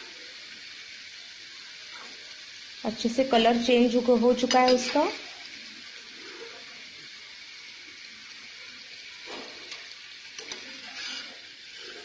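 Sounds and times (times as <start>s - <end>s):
chips sizzling in hot oil: 0.0s - 12.0s
scrape in frying pan: 5.9s - 6.8s, 9.0s - 12.0s.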